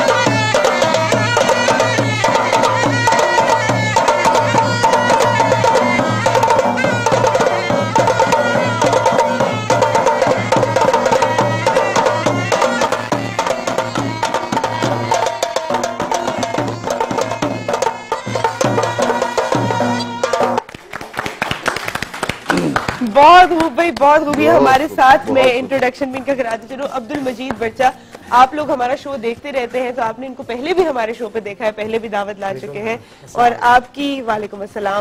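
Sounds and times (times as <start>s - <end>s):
folk music with drumbeats: 0.0s - 35.0s
pitched melody line: 24.0s - 25.8s.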